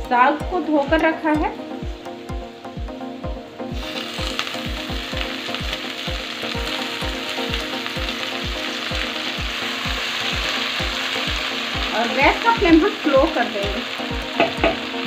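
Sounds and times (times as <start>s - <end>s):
wet leaves sizzling in hot oil: 3.7s - 15.0s.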